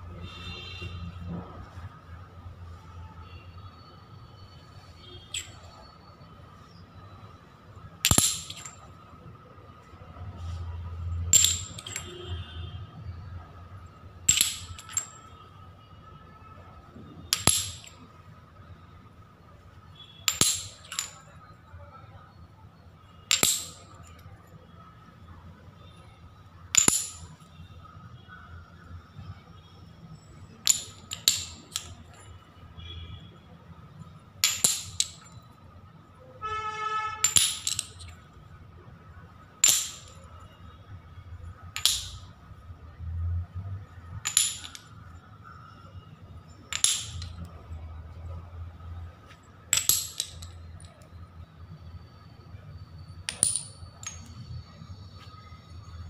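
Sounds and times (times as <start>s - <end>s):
ceramic tiles clinking: 4.8s - 6.2s, 7.7s - 12.7s, 13.7s - 15.6s, 17.2s - 18.2s, 20.0s - 21.7s, 23.0s - 24.7s, 26.3s - 27.8s, 28.7s - 42.9s, 43.8s - 48.4s, 49.2s - 51.4s, 53.0s - 56.0s.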